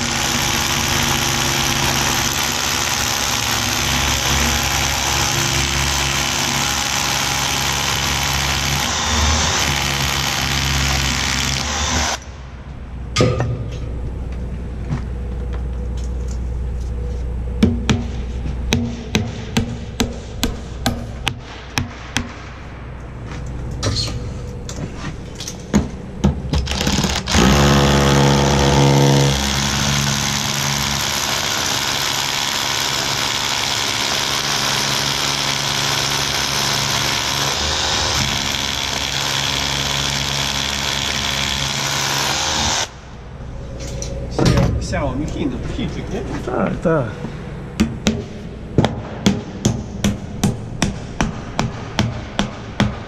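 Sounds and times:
low engine hum: 12.2s - 20.0s
sharp knocks: 17.6s - 22.5s, 47.8s - 53.0s.

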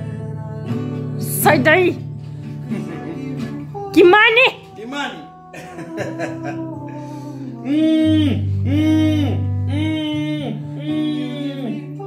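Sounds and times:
acoustic guitar: 0.0s - 12.0s
backing track: 1.2s - 12.0s.

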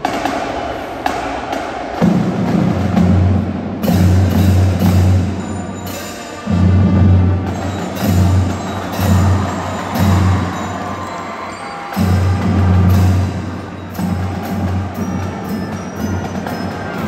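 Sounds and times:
drum hits: 0.0s - 5.5s, 6.5s - 11.0s
marching band playing: 0.0s - 17.0s.

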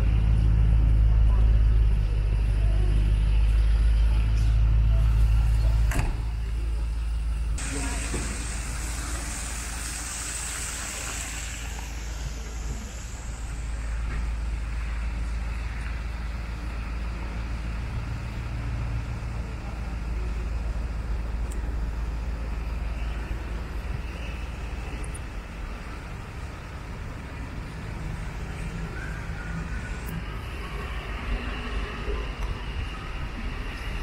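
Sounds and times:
street traffic rumble: 0.0s - 34.0s
higher hiss: 7.6s - 14.7s.

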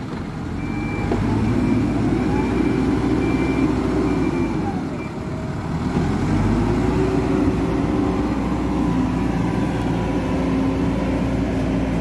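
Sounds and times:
diesel engine running under load: 0.0s - 12.0s.

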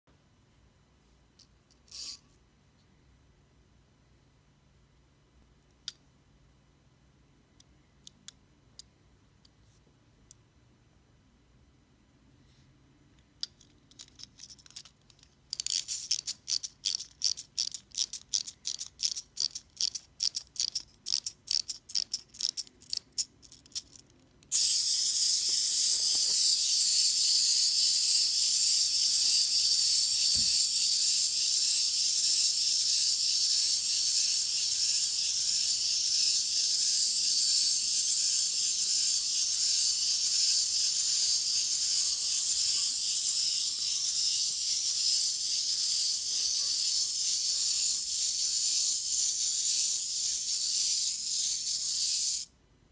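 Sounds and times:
winding key ratcheting clicks: 1.4s - 2.2s, 13.4s - 52.5s
clockwork motor whirring: 24.6s - 52.5s.

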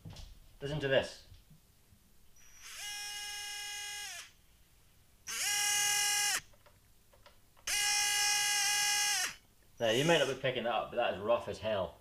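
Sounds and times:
electric motor whining: 2.4s - 4.3s, 5.3s - 6.4s, 7.7s - 10.4s.

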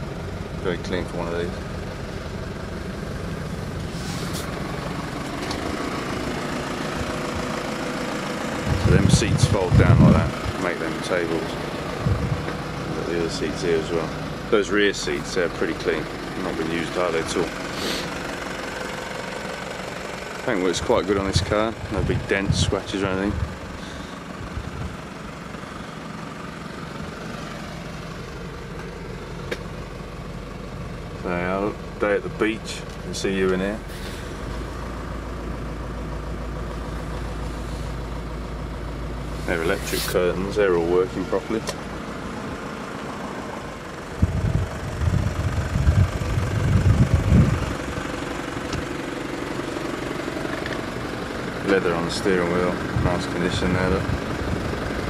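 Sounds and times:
diesel engine idling: 0.0s - 55.0s
low rumbling on microphone: 8.6s - 10.6s, 11.5s - 13.0s, 21.3s - 25.0s, 44.1s - 47.9s.

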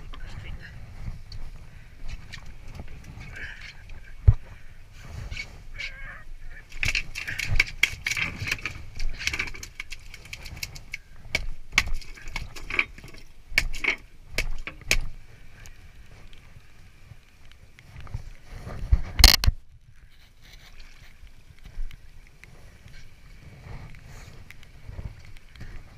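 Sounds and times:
fish flapping on metal deck: 6.7s - 13.0s.

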